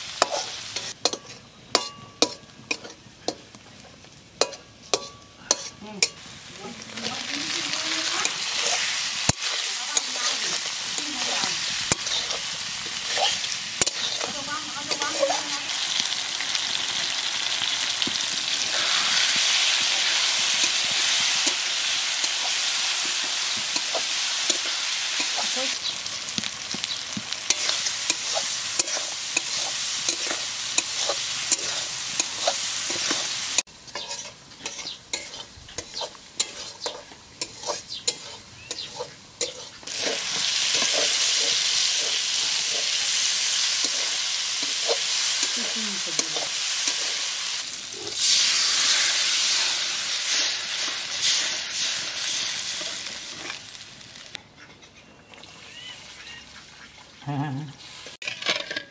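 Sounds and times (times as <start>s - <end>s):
spices sizzling in a pan: 0.0s - 54.4s
metal spatula scraping pan: 0.2s - 3.4s, 4.4s - 6.2s, 7.6s - 15.8s, 27.4s - 47.4s, 58.1s - 58.9s.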